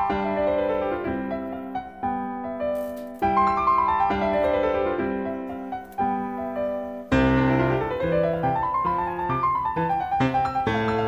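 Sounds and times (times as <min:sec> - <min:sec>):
piano music: 0:00.0 - 0:11.0.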